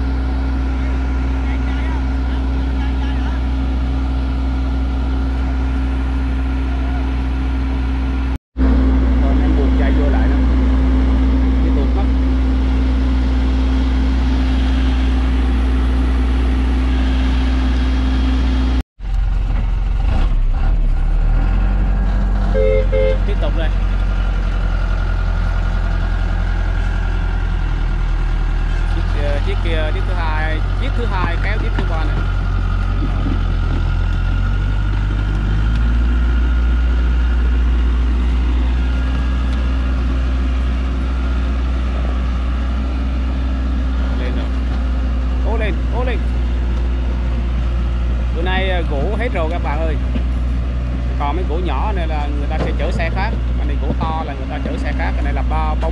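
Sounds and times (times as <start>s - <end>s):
truck engine running: 0.0s - 55.9s.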